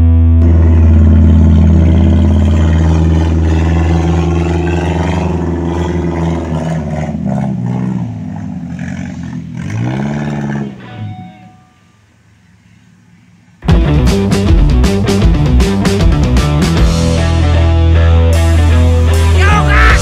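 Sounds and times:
off-road vehicle engine labouring: 0:00.0 - 0:11.0.

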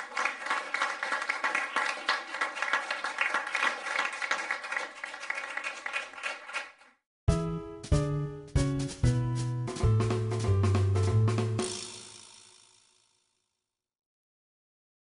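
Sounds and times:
audience applause: 0:00.0 - 0:06.9.

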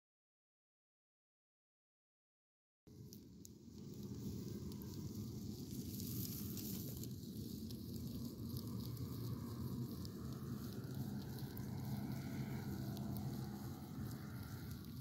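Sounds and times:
wind rumbling on microphone: 0:02.9 - 0:15.0
distant paramotor engine droning: 0:04.2 - 0:15.0.

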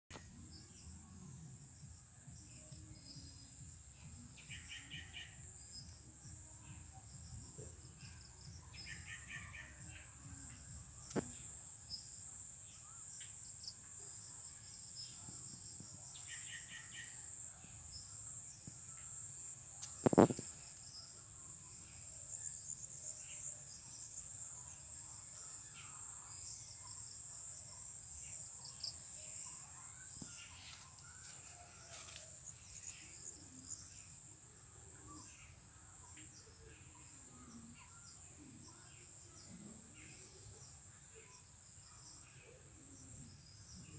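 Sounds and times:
insects trilling: 0:16.1 - 0:24.5.

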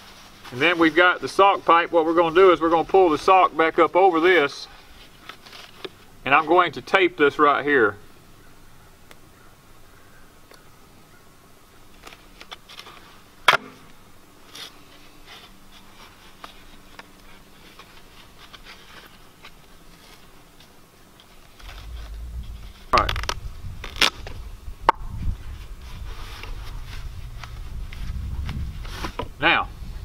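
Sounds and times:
low rumble: 0:21.6 - 0:24.0
plastic pipe scraping: 0:21.6 - 0:24.2
duct tape ripping off roll: 0:22.8 - 0:24.4.

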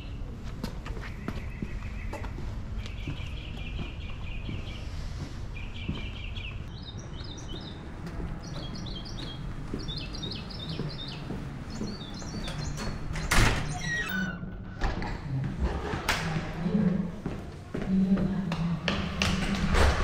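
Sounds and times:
small birds chirping: 0:00.0 - 0:14.3.

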